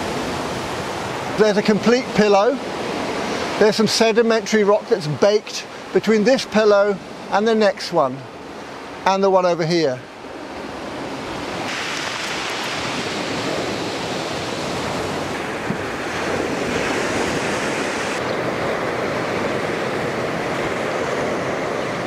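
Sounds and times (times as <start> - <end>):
surf washing onto pebble beach: 10.4 - 22.0.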